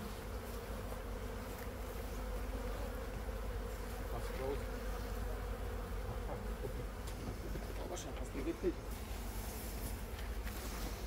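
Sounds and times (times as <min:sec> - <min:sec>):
bees buzzing: 0:00.0 - 0:11.0.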